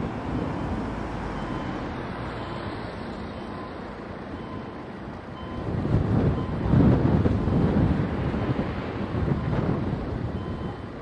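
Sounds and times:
road traffic noise: 0:00.0 - 0:11.0
level crossing warning tone: 0:00.3 - 0:06.7, 0:10.3 - 0:11.0.

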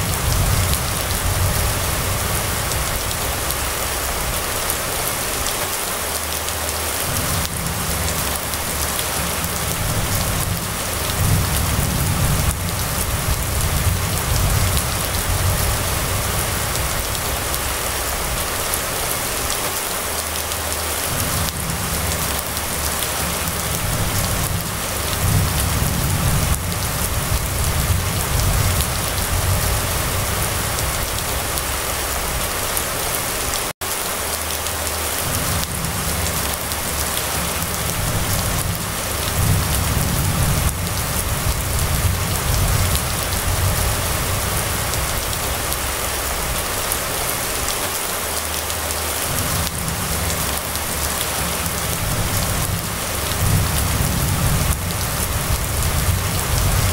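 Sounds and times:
heavy rain on paved road: 0:00.0 - 0:56.9.

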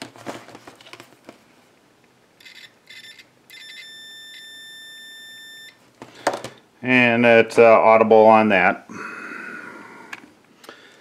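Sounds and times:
multimeter beep: 0:02.4 - 0:05.8.

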